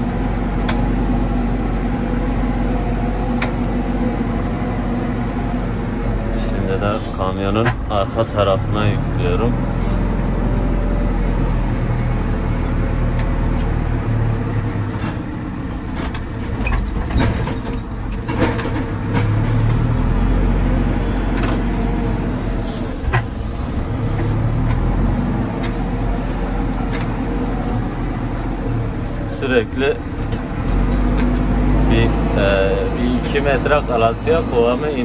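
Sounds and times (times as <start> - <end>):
diesel engine under load: 0.0 - 35.0
metal knocks and clanks: 15.8 - 20.0, 22.6 - 24.9.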